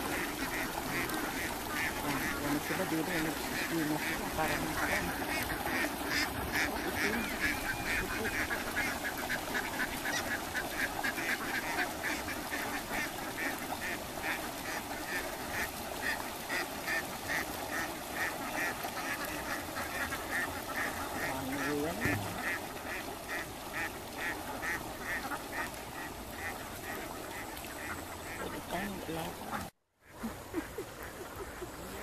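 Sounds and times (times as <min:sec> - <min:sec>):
ducks quacking: 0:00.0 - 0:32.0.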